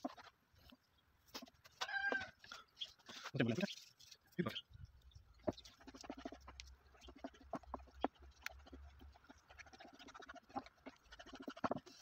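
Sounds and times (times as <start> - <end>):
wooden spoon stirring sauce in a pan: 5.4 - 12.0.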